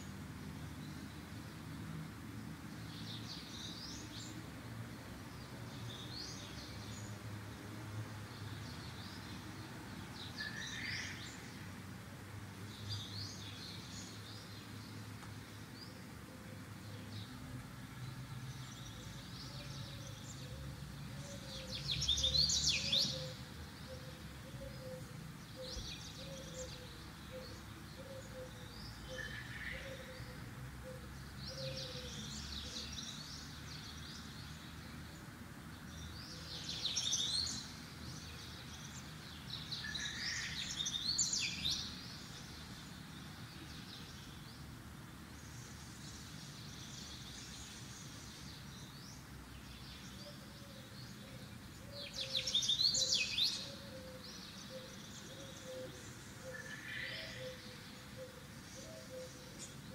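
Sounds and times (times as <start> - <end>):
bird chirping: 18.4 - 34.9, 45.4 - 59.9.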